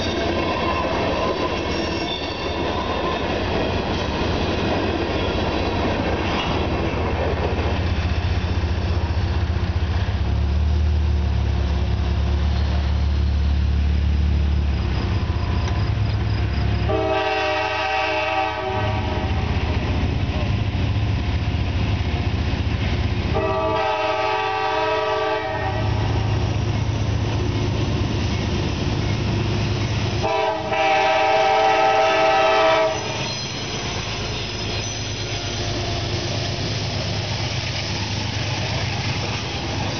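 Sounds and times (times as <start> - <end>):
freight cars rumbling: 0.0 - 39.9
train horn blasts: 16.8 - 19.6, 23.3 - 26.3, 30.2 - 33.7.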